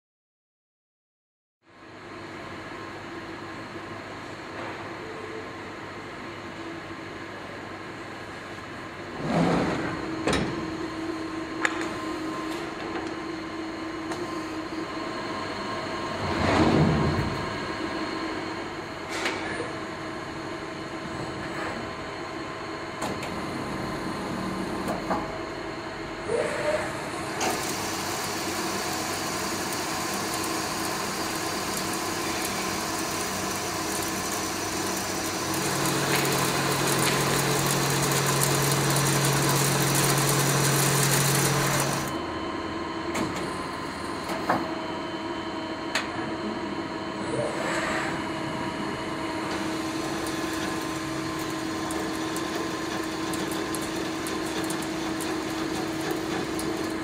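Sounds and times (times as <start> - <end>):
lathe machining whine: 17.2 - 57.0.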